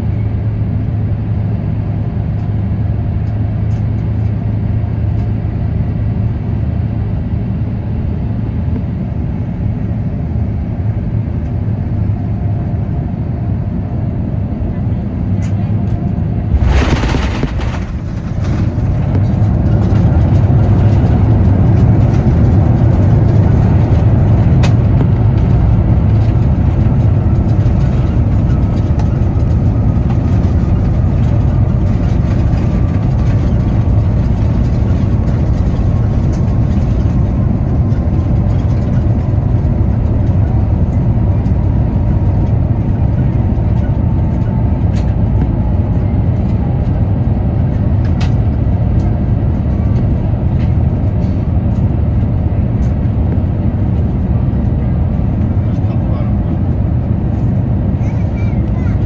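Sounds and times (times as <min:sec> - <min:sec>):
airplane touching down: 0:00.0 - 0:59.0
jet engine whine falling: 0:00.0 - 0:59.0
landing rollout rumble: 0:15.9 - 0:46.5.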